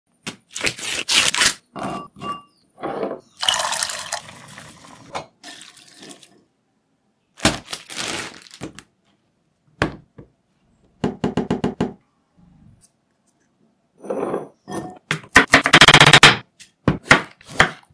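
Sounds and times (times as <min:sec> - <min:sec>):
pouring and splashing: 0:03.4 - 0:06.3.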